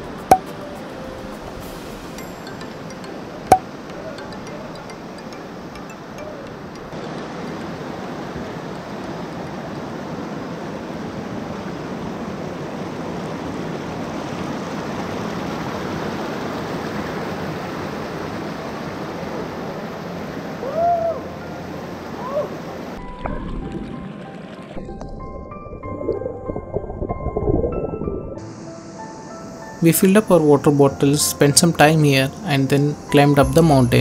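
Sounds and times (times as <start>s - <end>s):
soft steady tones: 0.0s - 8.1s, 29.4s - 34.0s
mountain stream rushing over boulders: 5.9s - 23.0s.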